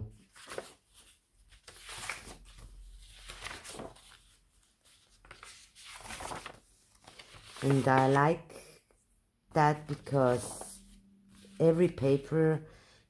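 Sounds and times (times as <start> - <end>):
stiff paper rustling: 0.2 - 8.3.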